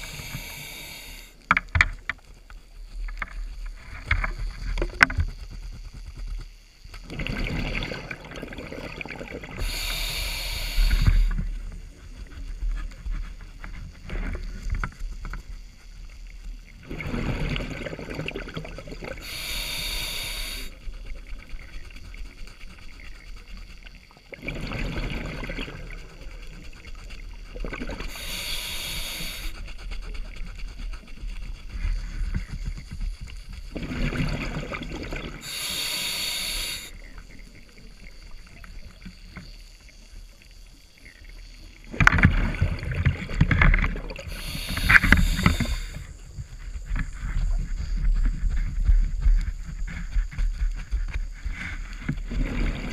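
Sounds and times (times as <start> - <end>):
diver breathing through regulator: 0.0 - 1.4, 9.6 - 14.0, 19.1 - 23.9, 24.6 - 32.7, 33.8 - 37.2, 43.6 - 46.3.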